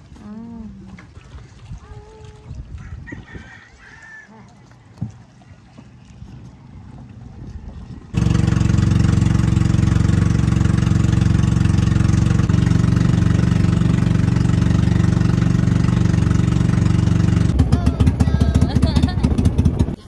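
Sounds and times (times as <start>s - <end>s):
engine running loud: 6.7s - 20.0s.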